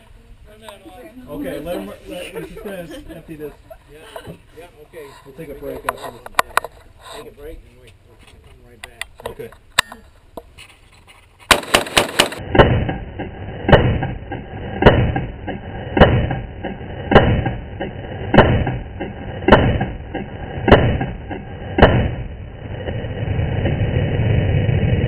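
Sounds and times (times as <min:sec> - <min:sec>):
rifle shots: 0:11.5 - 0:22.3
low rushing noise: 0:11.7 - 0:25.0.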